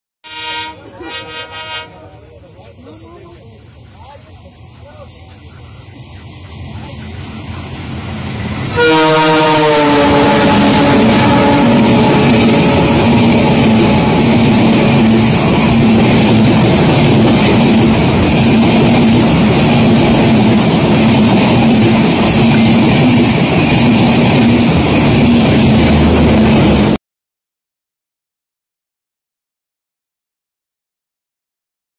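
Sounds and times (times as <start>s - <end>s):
diesel locomotive horn: 0.2s - 2.2s, 8.7s - 15.1s
train coaches rushing past: 0.4s - 27.0s.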